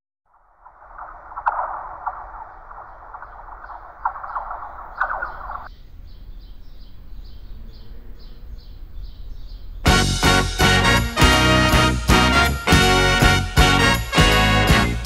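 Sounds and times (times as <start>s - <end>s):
scratchy crackling hiss: 0.4s - 5.7s.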